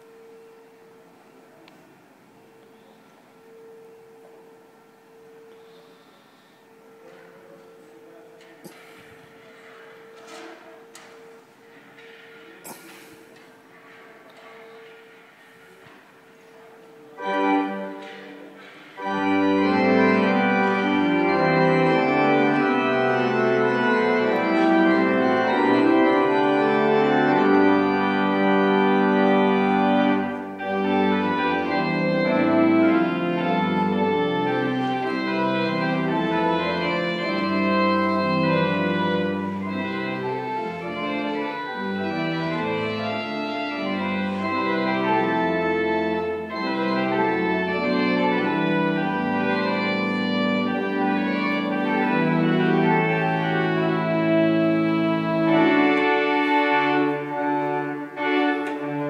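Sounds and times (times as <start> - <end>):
organ chords: 17.1 - 59.0.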